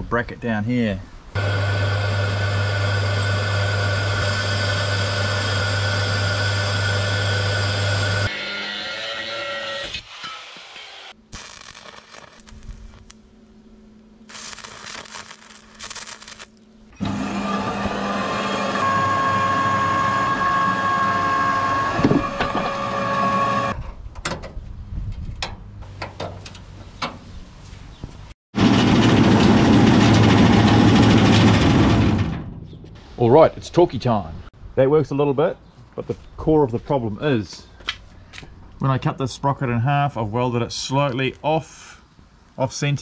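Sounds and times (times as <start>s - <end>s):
ride-on mower engine running: 1.4s - 8.3s, 17.0s - 23.7s
band saw cutting plastic: 14.3s - 23.8s.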